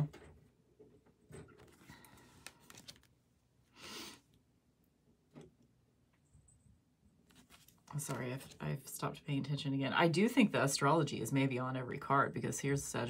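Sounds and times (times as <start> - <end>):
cards sliding rustle: 1.6 - 3.1, 7.3 - 8.6.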